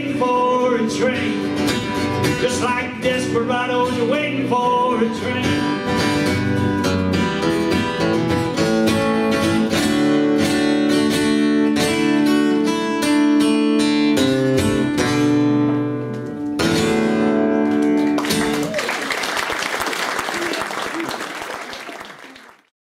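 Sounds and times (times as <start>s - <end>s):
acoustic guitar strumming: 0.0s - 18.6s.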